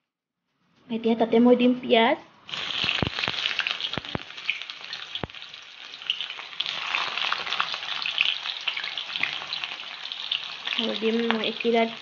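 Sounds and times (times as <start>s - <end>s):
onions sizzling in hot oil: 2.4s - 12.0s
sharp oil pops: 2.8s - 4.3s.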